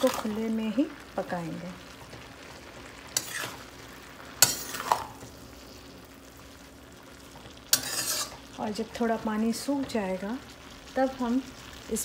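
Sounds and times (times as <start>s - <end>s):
low sizzle in a pan: 0.0s - 12.0s
metal spoon stirring cabbage: 3.1s - 3.7s, 7.7s - 8.5s.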